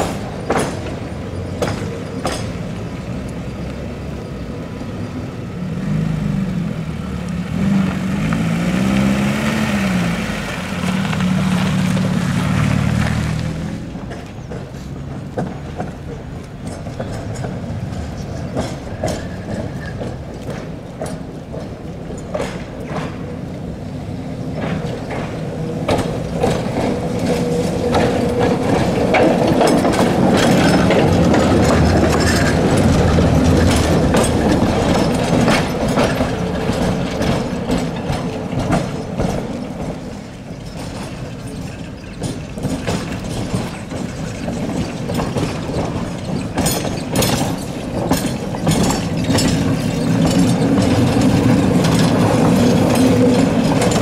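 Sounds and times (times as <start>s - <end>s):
tram rattling past: 0.0s - 54.0s
wheels knocking on rails: 0.0s - 54.0s.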